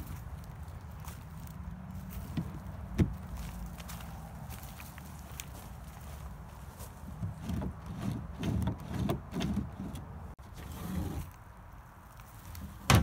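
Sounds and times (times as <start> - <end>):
footsteps on wood-chip mulch: 0.0 - 7.9, 10.9 - 12.9.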